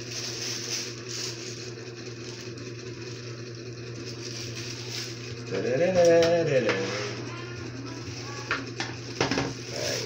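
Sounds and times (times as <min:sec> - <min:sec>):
plastic bag rustling: 0:00.0 - 0:02.6, 0:04.0 - 0:05.4
motor hum: 0:00.0 - 0:10.0.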